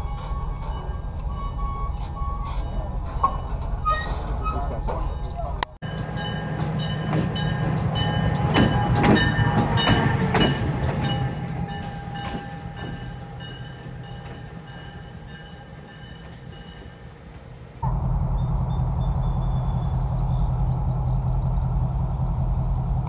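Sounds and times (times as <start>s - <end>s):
diesel locomotive engine rumbling: 0.0s - 23.0s
wheels clicking over rails: 5.8s - 17.7s.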